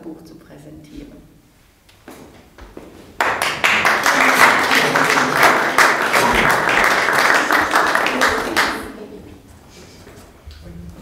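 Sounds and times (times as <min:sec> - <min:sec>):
audience applauding: 0:03.2 - 0:09.1.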